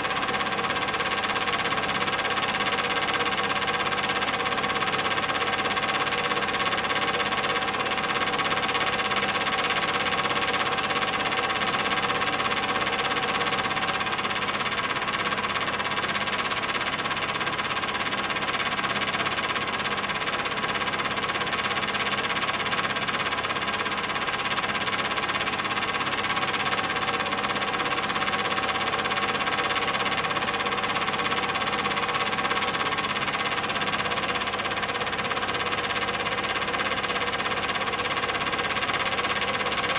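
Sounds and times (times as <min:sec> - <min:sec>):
film projector whirring: 0:00.0 - 0:39.9.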